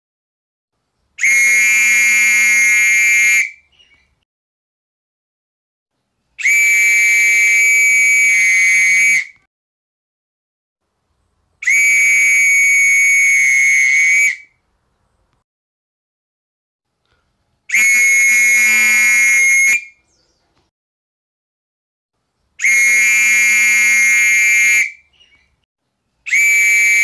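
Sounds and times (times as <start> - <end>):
whistle blasts: 1.2 - 3.7, 6.4 - 9.5, 11.6 - 14.6, 17.7 - 20.0, 22.6 - 25.1, 26.2 - 27.0.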